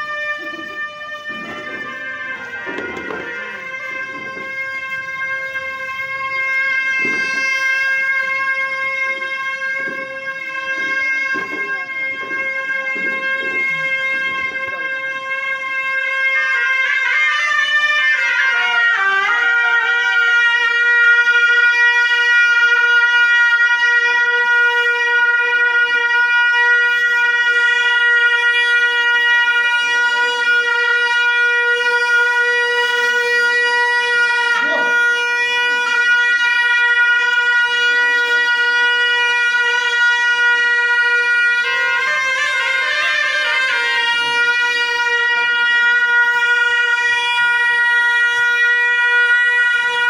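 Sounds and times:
horns holding high note: 0.0s - 17.0s, 33.3s - 38.3s
wavering ornamented horn line: 0.0s - 50.0s.

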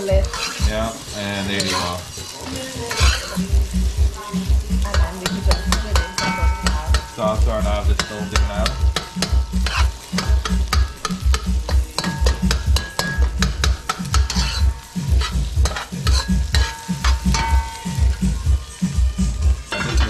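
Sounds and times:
metal spoon scraping metal pan: 0.0s - 3.6s, 4.9s - 7.4s, 8.0s - 18.2s
egg sizzling: 0.0s - 20.0s.

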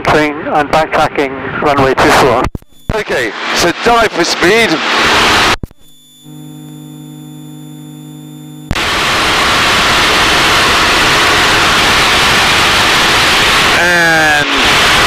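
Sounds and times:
hum with fixed tones: 2.4s - 13.8s.

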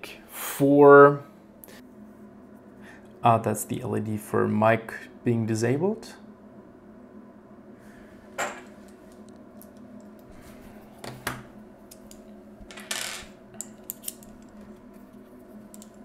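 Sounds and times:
faint steady hum: 0.0s - 16.0s
small metal parts set on wooden desk: 8.4s - 8.8s, 12.7s - 14.5s.

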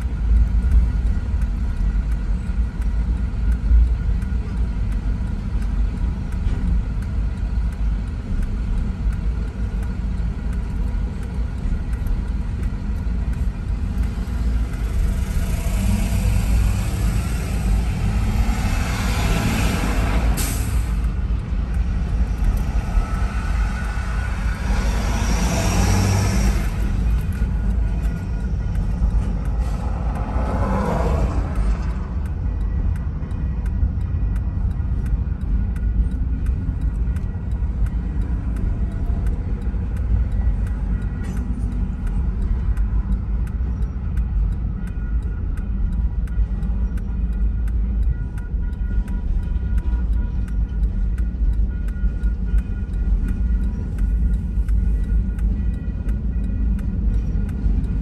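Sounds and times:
light regular ticking: 0.0s - 58.0s
train wheels rumbling on rail: 0.0s - 58.0s.

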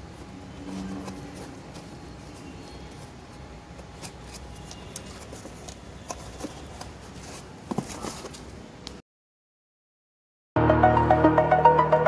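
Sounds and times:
low background noise: 0.0s - 9.0s.

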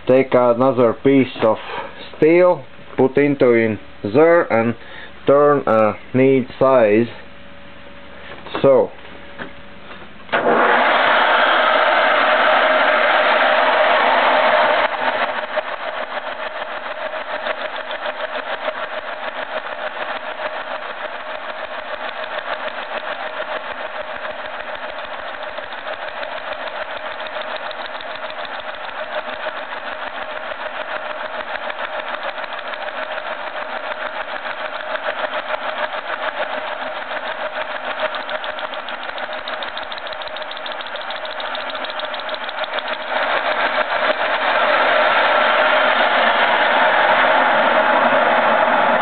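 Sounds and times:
milling machine cutting steel: 10.3s - 48.7s.

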